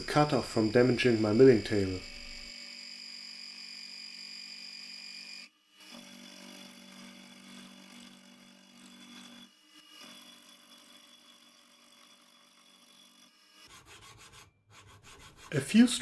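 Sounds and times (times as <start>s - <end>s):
milling machine whining: 0.0s - 5.2s.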